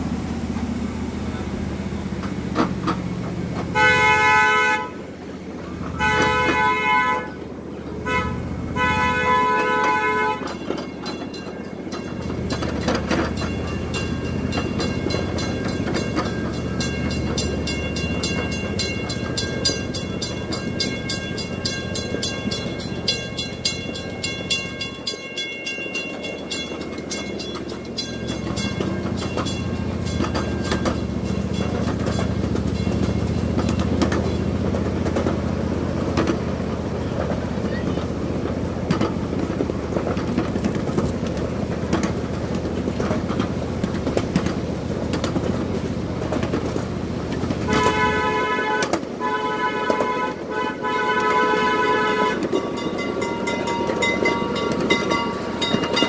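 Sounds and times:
low engine hum: 0:00.0 - 0:50.4
wheels clicking over rail joints: 0:00.0 - 0:56.0
train horn blasts: 0:03.7 - 0:05.2, 0:05.8 - 0:10.9, 0:47.6 - 0:52.8.

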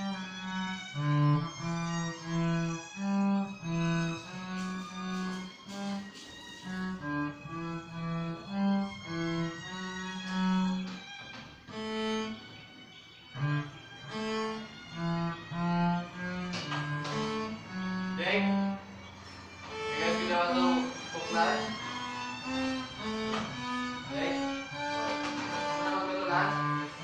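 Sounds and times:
bowed cello notes: 0:00.0 - 0:27.0.

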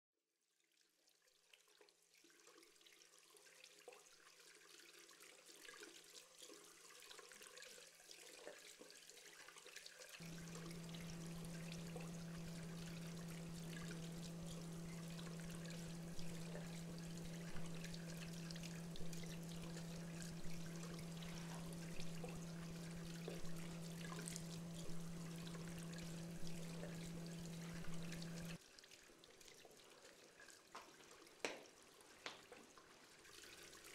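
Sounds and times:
low pulsing hum: 0:10.2 - 0:28.6
running water hiss: 0:10.2 - 0:29.3.

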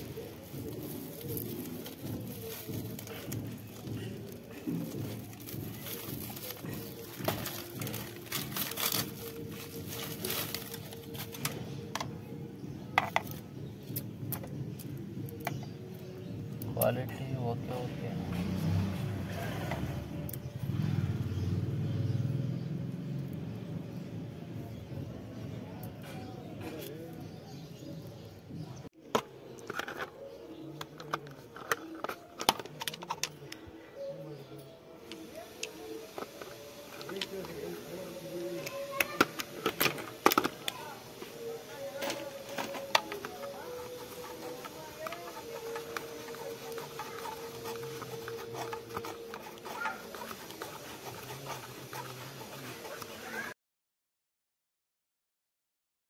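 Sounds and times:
plastic packaging crinkling: 0:00.0 - 0:11.6, 0:36.1 - 0:53.1
plastic crackles: 0:00.0 - 0:12.2, 0:35.1 - 0:53.2.

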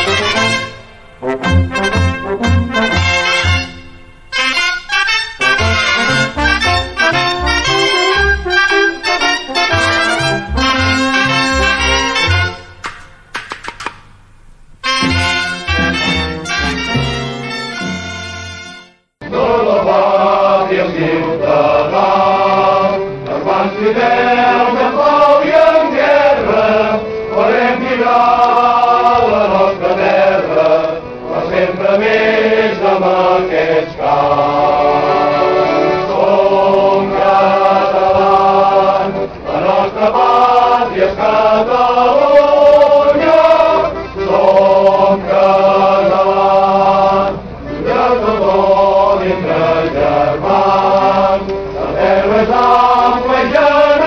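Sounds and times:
choir singing: 0:00.0 - 0:12.8, 0:19.2 - 0:54.0
choir breaths: 0:19.8 - 0:54.0.

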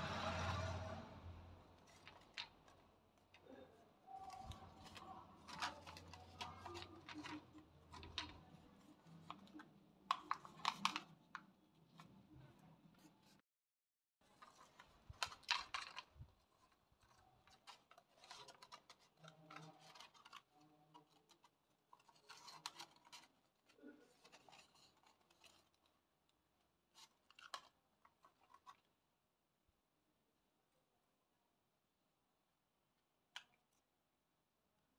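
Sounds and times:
stiff paper rustling and crinkling: 0:01.8 - 0:13.4, 0:14.2 - 0:29.0.

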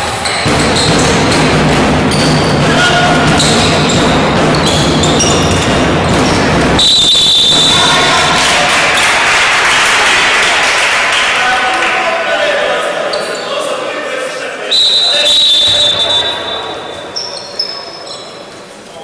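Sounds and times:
steady hall noise: 0:00.0 - 0:19.0
basketball bouncing on wooden floor: 0:00.4 - 0:06.8
players' voices: 0:02.1 - 0:19.0
shoes squeaking: 0:03.3 - 0:06.5, 0:15.2 - 0:19.0.

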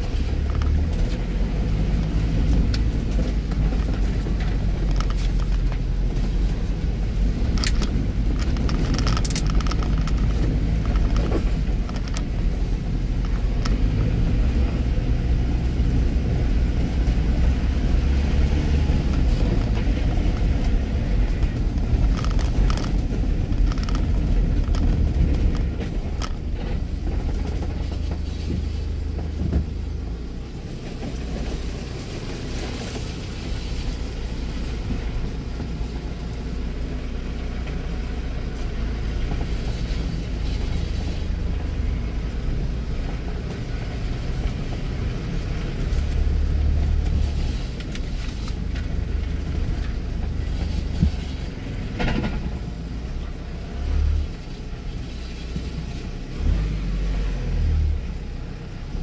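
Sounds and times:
car rumbling in motion: 0:00.0 - 0:59.0.

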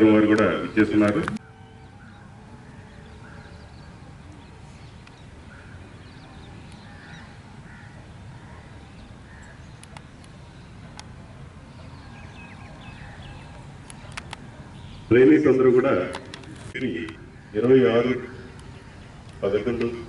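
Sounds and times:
faint bird calls and chirps: 0:00.6 - 0:15.2
sharp clicks: 0:13.5 - 0:14.4.

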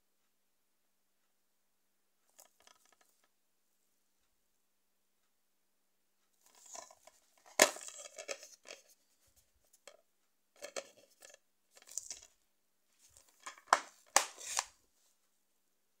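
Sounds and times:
rustling and scraping of case: 0:06.4 - 0:09.0, 0:10.6 - 0:12.3, 0:13.0 - 0:14.7
plastic case clicks: 0:13.4 - 0:14.7.

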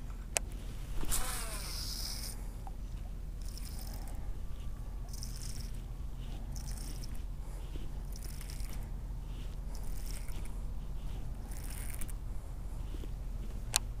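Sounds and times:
low rumble: 0:00.0 - 0:14.0
reel spool spinning whir: 0:00.9 - 0:02.6, 0:03.3 - 0:12.2
fishing reel cranking: 0:01.1 - 0:02.4, 0:03.4 - 0:04.2, 0:05.1 - 0:05.8, 0:06.6 - 0:07.2, 0:08.1 - 0:08.8, 0:09.7 - 0:10.5, 0:11.5 - 0:12.1.

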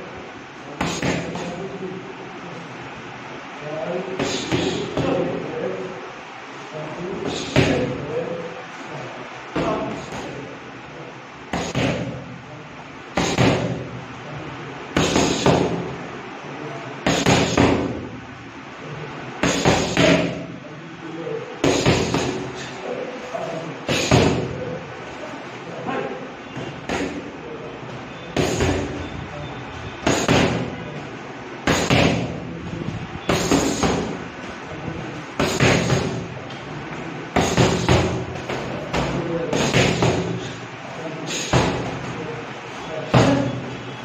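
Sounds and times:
boxing gloves slapping mitts: 0:21.6 - 0:22.5, 0:31.7 - 0:32.3, 0:33.3 - 0:34.2, 0:35.4 - 0:36.3.

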